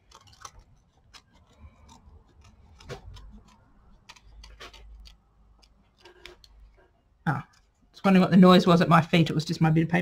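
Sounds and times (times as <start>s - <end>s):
scissors snipping paper: 0.0s - 6.7s.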